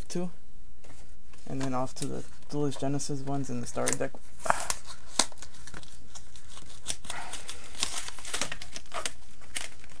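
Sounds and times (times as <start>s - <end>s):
packaging crinkling and tearing: 3.6s - 10.0s.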